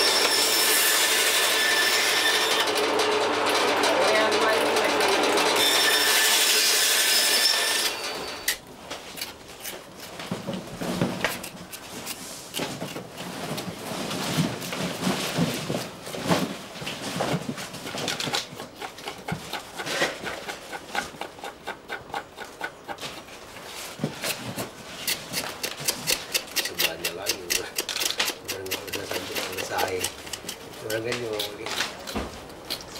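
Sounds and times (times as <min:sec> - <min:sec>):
band saw running: 0:00.0 - 0:08.6
knife cutting on wooden board: 0:24.1 - 0:32.9.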